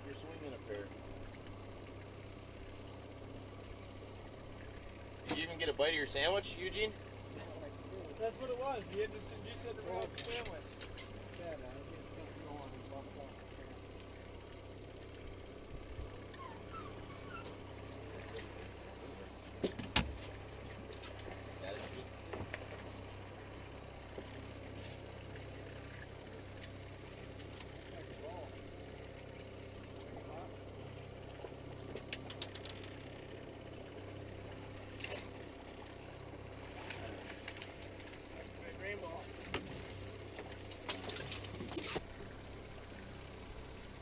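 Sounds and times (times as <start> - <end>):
boat engine idling: 0.0 - 44.0
rattle of clicks: 31.8 - 33.1, 40.3 - 42.1.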